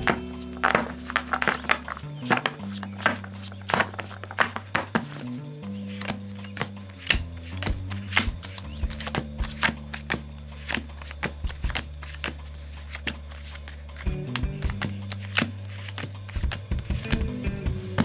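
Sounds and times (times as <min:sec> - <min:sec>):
background music with bass line: 0:00.0 - 0:18.0
playing cards being shuffled: 0:00.0 - 0:18.0.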